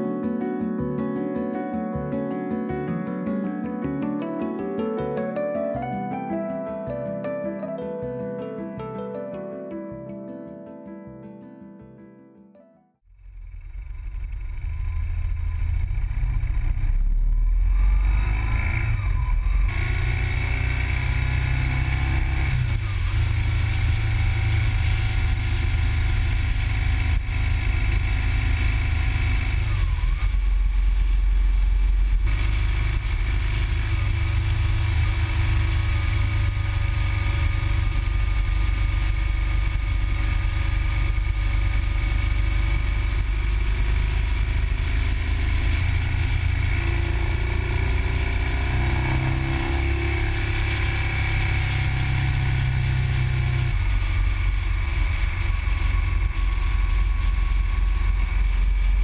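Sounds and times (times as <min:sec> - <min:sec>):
motorcycle engine running: 0:13.2 - 0:59.0.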